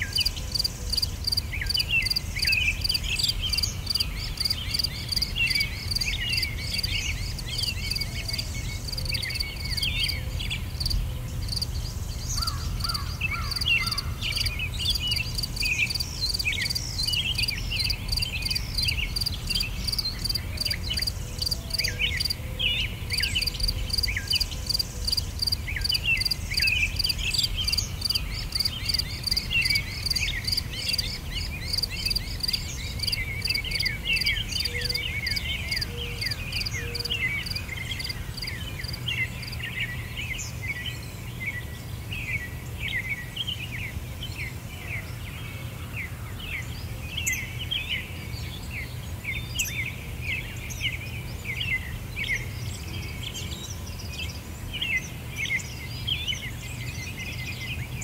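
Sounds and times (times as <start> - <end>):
crickets chirping: 0.0 - 22.4, 23.0 - 39.7
birds chirping: 0.0 - 45.3.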